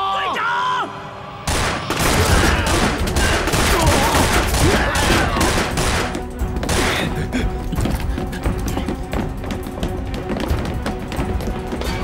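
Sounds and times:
rapid heavy gunfire: 1.5 - 6.1.

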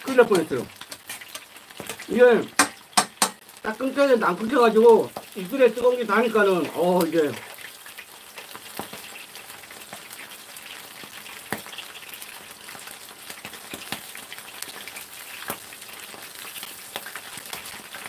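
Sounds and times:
squid frying in oil: 0.0 - 18.0
metal tongs knocking on pan: 0.4 - 3.4.

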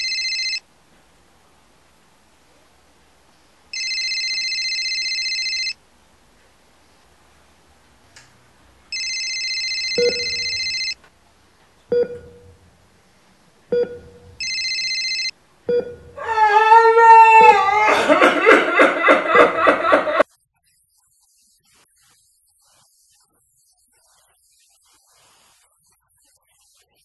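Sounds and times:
telephone ringing: 0.0 - 0.6, 3.7 - 5.8, 8.9 - 11.0, 13.7 - 16.2.

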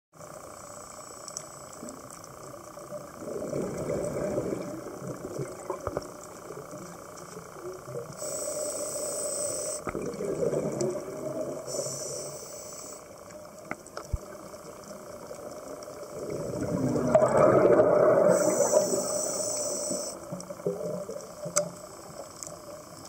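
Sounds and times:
gurgling exhaled bubbles: 3.1 - 6.6, 9.8 - 11.9, 15.4 - 19.1
diver inhaling through regulator: 8.2 - 10.0, 11.4 - 13.2, 17.3 - 20.2.

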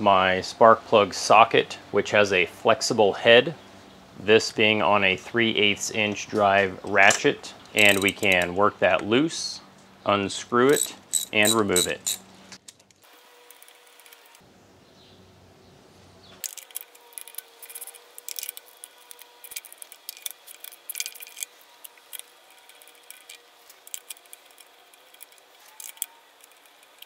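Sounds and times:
metallic socket clicks: 7.1 - 8.5, 10.7 - 13.0.

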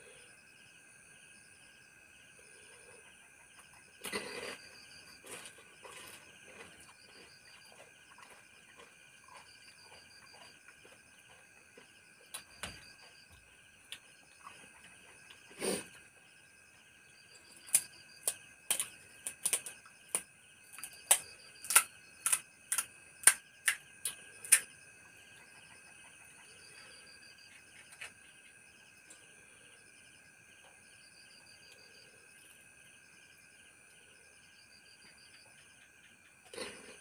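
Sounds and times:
night insects chorus: 0.0 - 37.0
crunchy shells cracking: 17.6 - 24.7.

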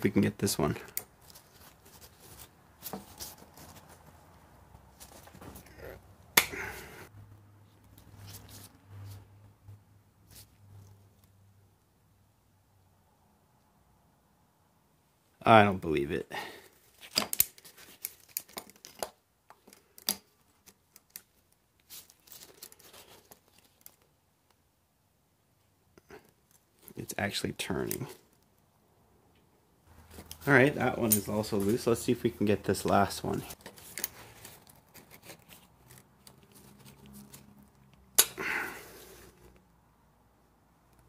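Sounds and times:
rustling scrape: 1.2 - 5.7, 7.9 - 9.4, 33.1 - 37.8.

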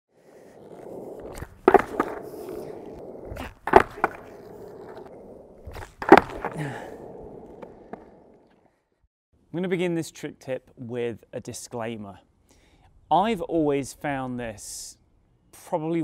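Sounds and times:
skateboard wheels rolling on concrete: 0.1 - 8.9
skateboard clacks: 0.4 - 8.5.

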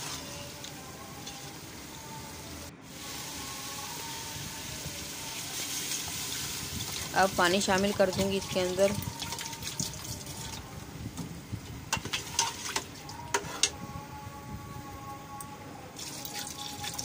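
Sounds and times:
ladle stirring: 11.9 - 13.8
ladle clinking against pot: 12.0 - 13.8
water pouring into a pot: 16.0 - 17.0.

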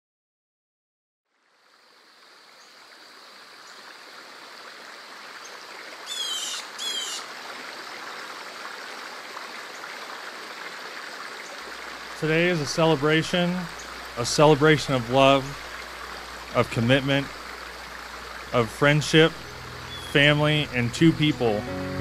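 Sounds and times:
stream water flowing: 1.3 - 22.0
short high chirps: 19.4 - 20.2.

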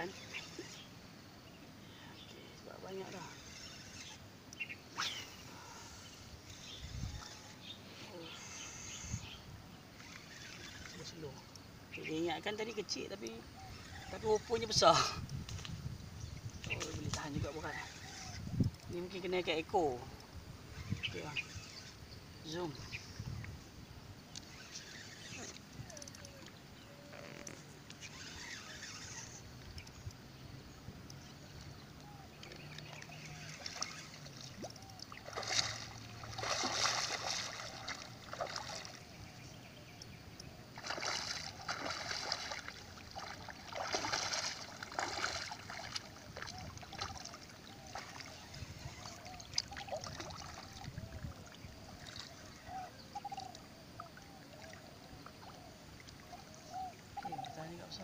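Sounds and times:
water lapping: 24.3 - 29.8, 31.5 - 39.6, 40.4 - 58.0
fish thrashing and splashing: 32.5 - 39.1, 40.7 - 52.4.

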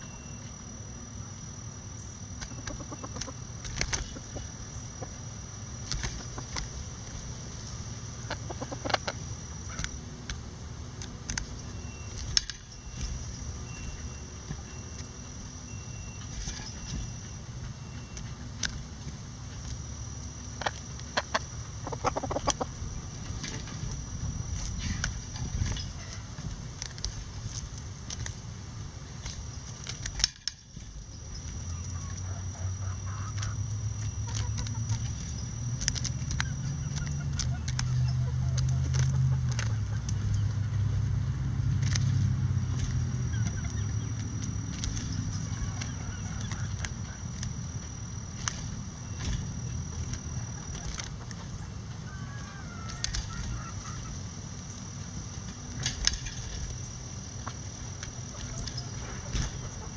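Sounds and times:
thin high whine: 0.0 - 38.2, 40.5 - 59.9
beaks tapping on cabbage leaves: 2.4 - 5.2, 5.8 - 10.4, 33.2 - 40.9, 41.6 - 51.6, 52.8 - 54.2
chickens clucking: 2.4 - 10.0, 20.6 - 27.2, 31.4 - 40.9, 41.9 - 59.9.

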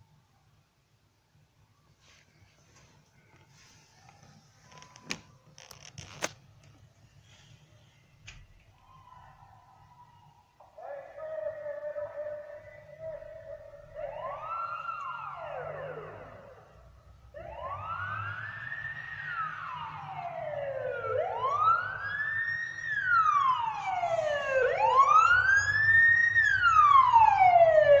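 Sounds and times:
police siren wailing: 8.7 - 28.0.

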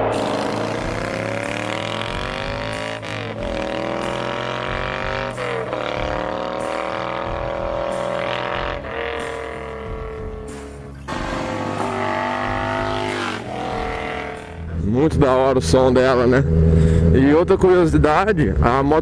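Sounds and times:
motorcycle accelerating through gears: 0.0 - 15.0.

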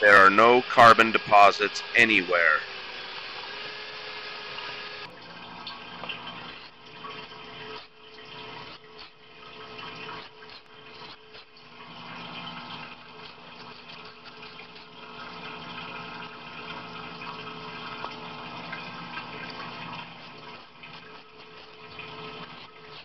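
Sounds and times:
faint pump hum: 5.0 - 23.0
liquid pouring into sink: 5.0 - 23.0.

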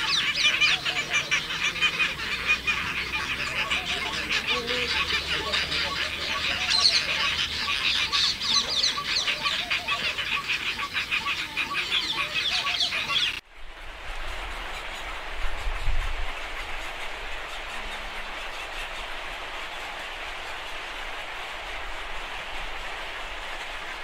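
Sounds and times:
storks honking and chattering: 0.0 - 13.4.

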